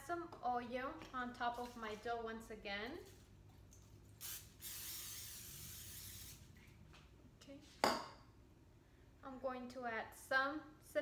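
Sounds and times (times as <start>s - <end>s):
aerosol spray can hissing: 4.2s - 6.5s.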